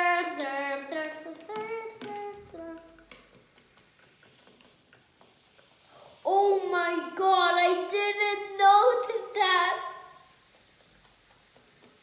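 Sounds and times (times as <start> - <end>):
child singing held notes: 0.0 - 3.2, 6.2 - 10.2.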